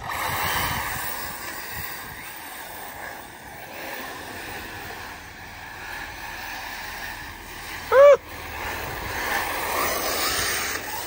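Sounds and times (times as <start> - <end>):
electric motors whining: 0.0 - 11.0.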